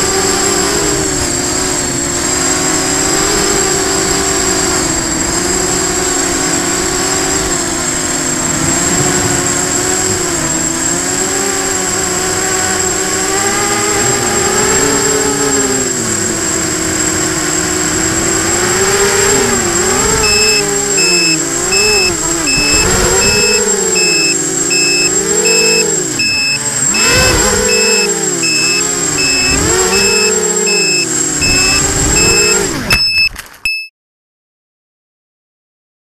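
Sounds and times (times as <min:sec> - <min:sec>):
drone motors and propellers whining: 0:00.0 - 0:33.8
high electronic beep: 0:20.2 - 0:33.9.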